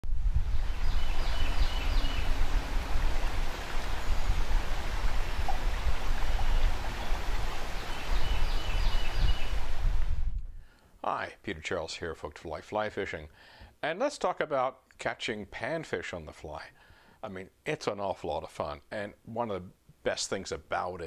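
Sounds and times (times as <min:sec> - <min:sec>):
river water rushing: 0:00.4 - 0:10.0
high chirping: 0:00.6 - 0:02.7.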